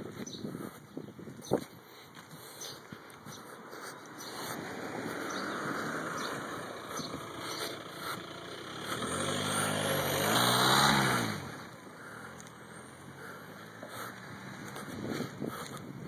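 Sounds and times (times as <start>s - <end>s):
car passing by: 4.1s - 15.4s.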